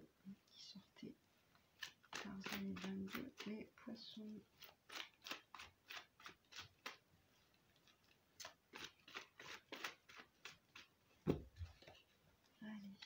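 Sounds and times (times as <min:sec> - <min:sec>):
cards being shuffled: 0:01.8 - 0:03.6, 0:04.6 - 0:07.0, 0:07.8 - 0:12.1
deck thump on cloth table: 0:11.2 - 0:11.6.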